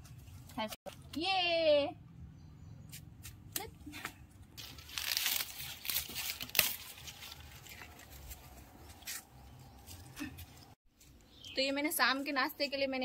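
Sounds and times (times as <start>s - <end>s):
corn husks rustling: 4.6s - 11.1s.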